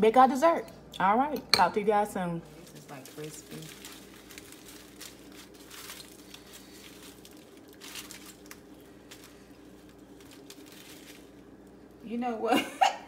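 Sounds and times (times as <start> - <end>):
faint steady hum: 0.0 - 13.0
puff pastry crackling and tearing: 2.4 - 12.1
foil crinkling: 2.4 - 12.2.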